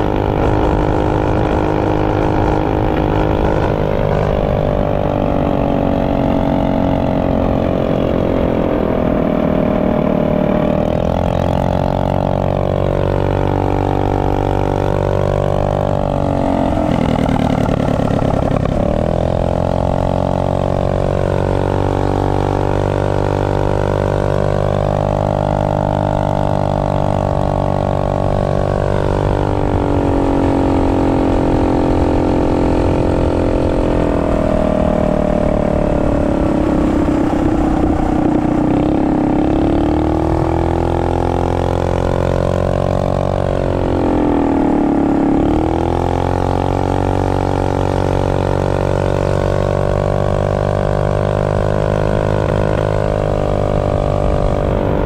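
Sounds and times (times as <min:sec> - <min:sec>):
small engine revving: 0:00.0 - 0:55.0.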